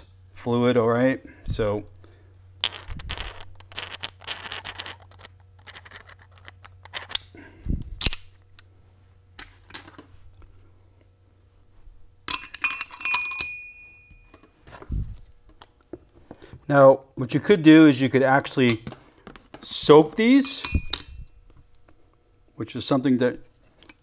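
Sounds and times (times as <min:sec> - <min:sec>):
metal plates clinking: 0:02.6 - 0:08.7, 0:09.4 - 0:10.2, 0:12.3 - 0:13.8, 0:20.4 - 0:21.3.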